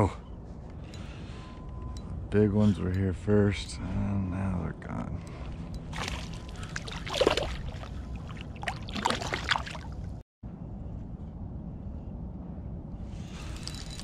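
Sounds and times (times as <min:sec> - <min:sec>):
water splashing: 0:05.9 - 0:10.2
steady low rumble: 0:09.8 - 0:14.0.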